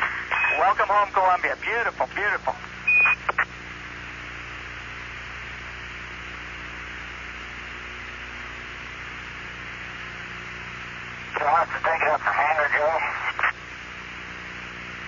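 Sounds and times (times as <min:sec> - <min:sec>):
radio hiss: 0:00.0 - 0:04.3, 0:08.8 - 0:15.0
low electrical hum: 0:00.0 - 0:15.0.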